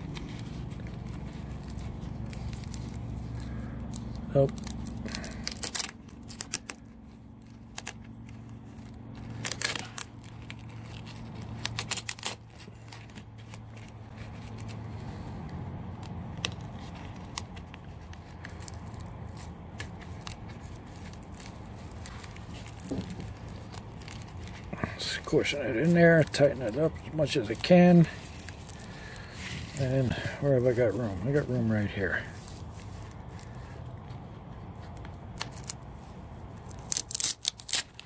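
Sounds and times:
steady low hum: 0.0 - 38.0
webbing belt rustling and scraping: 0.0 - 38.0.

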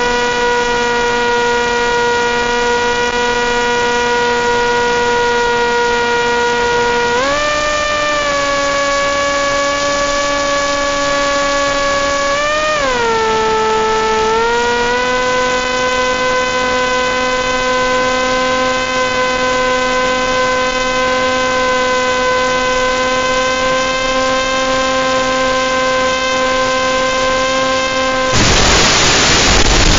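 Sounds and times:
model plane motor whining: 0.0 - 29.9
constant hiss: 28.3 - 29.9.

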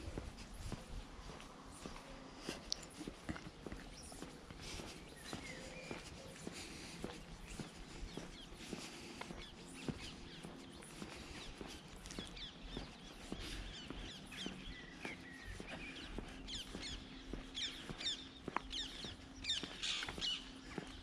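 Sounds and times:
footsteps on pavement: 0.0 - 21.0
songbirds chirping: 0.0 - 21.0.

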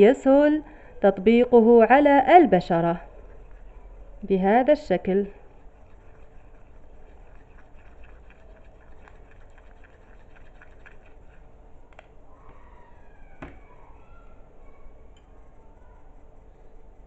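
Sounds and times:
spoon stirring thick paste: 1.6 - 11.6.

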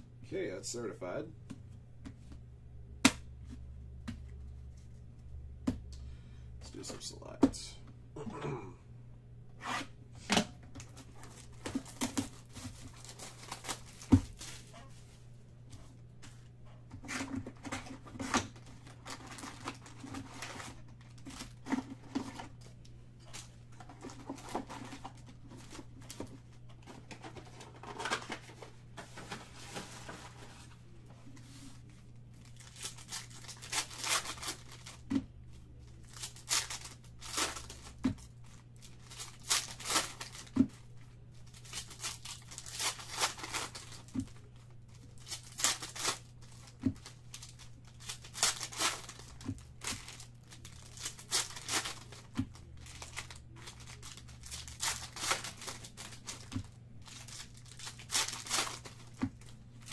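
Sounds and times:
foil wrappers crinkling and tearing: 10.8 - 15.2, 17.0 - 30.8, 32.3 - 59.9.

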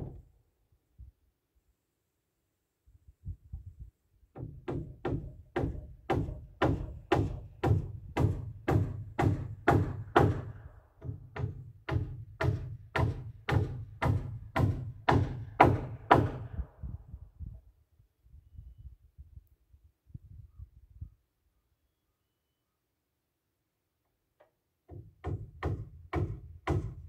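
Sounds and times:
hammer striking wood: 4.4 - 16.6, 24.9 - 27.0.

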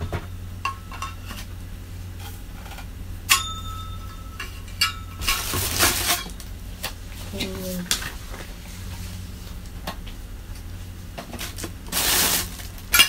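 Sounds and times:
low steady hum: 0.0 - 13.0
metal clink ringing: 3.3 - 5.3
rustling: 5.2 - 9.8.

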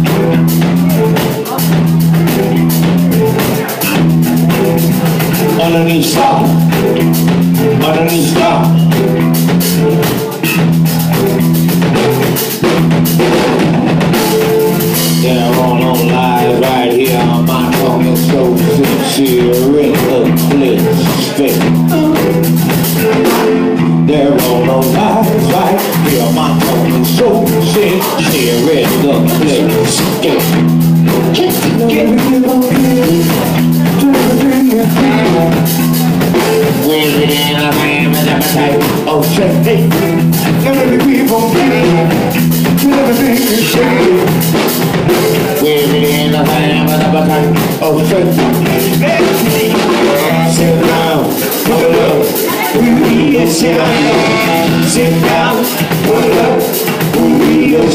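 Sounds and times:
band playing bluesy soul song: 0.0 - 57.9.

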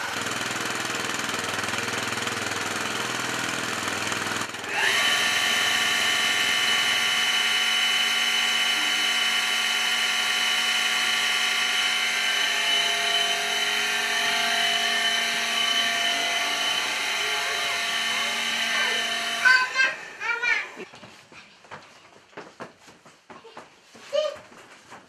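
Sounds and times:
pump motor whining: 0.0 - 20.9.

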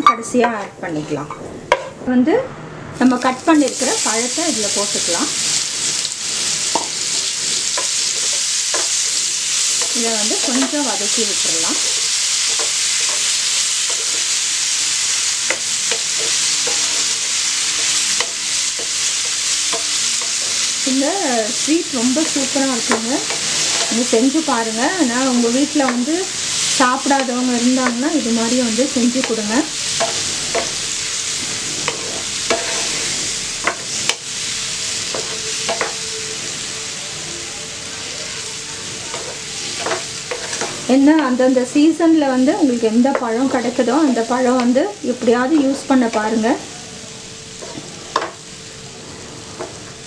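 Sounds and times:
figs sizzling in a pan: 3.0 - 50.0
wooden spoon scraping a pan: 39.2 - 40.9, 47.6 - 48.2.

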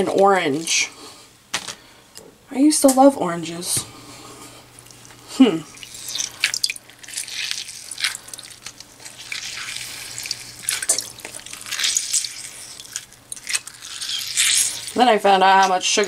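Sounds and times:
juice dripping into bowl: 4.7 - 15.0
wet squelches of orange pulp: 4.7 - 15.0.

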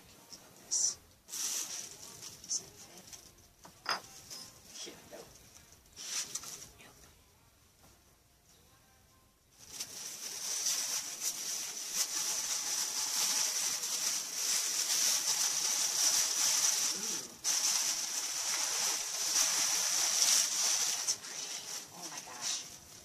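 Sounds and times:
packaging crinkling and rustling: 9.6 - 23.0.

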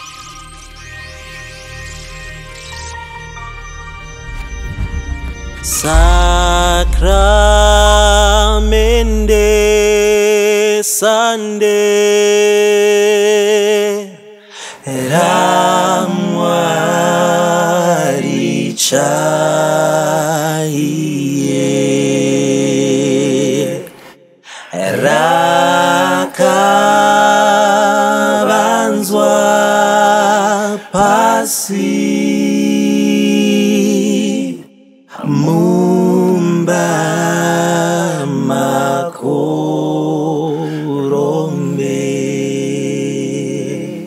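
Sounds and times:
men singing a hymn a cappella: 10.0 - 44.0.

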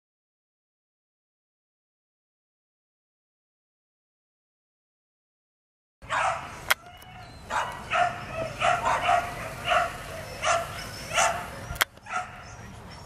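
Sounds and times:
puppy barking and yipping: 6.0 - 12.6.

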